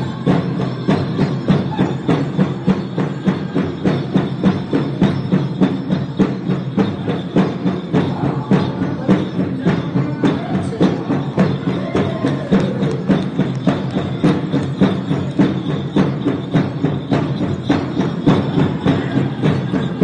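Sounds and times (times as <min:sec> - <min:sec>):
large drum beating: 0:00.0 - 0:20.0
voices singing: 0:07.0 - 0:15.6, 0:17.7 - 0:20.0.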